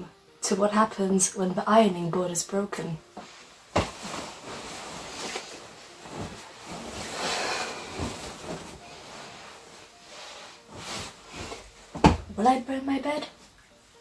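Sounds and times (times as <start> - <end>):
cotton fabric rustling: 3.0 - 14.0.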